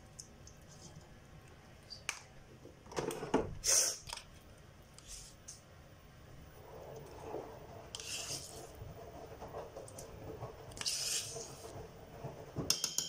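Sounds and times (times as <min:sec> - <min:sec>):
spoon scraping in metal bowl: 0:07.9 - 0:08.8, 0:10.7 - 0:11.7.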